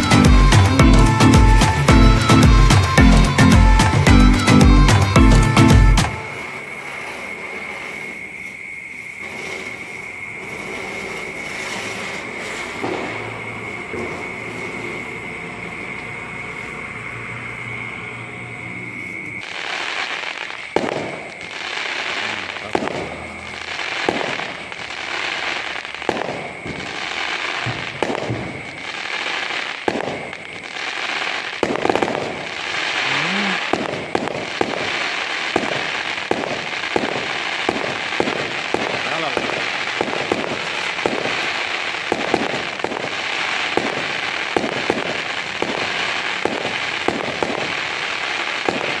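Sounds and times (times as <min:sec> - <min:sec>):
hiss with high tone: 0:00.0 - 0:26.0, 0:30.6 - 0:40.0
distant fireworks bangs: 0:00.0 - 0:49.0
fireworks crackling: 0:00.0 - 0:49.0.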